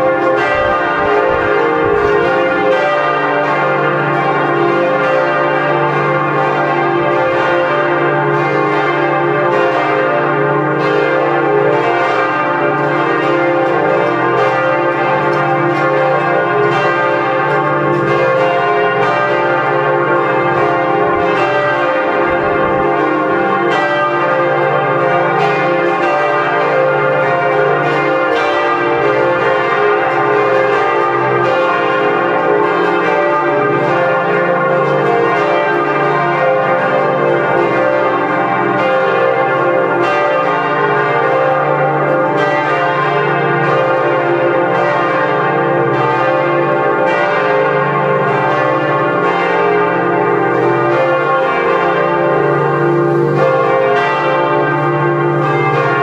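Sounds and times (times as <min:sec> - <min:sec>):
church bells pealing: 0:00.0 - 0:56.0.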